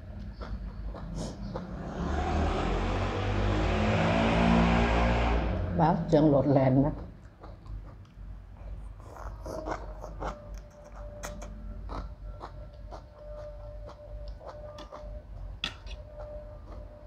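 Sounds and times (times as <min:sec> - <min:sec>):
person chewing noodles: 0:07.0 - 0:17.0.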